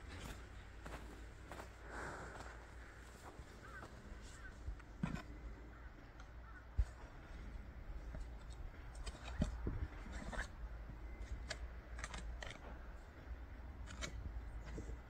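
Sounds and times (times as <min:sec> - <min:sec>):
wind rumble on microphone: 0:08.8 - 0:10.3.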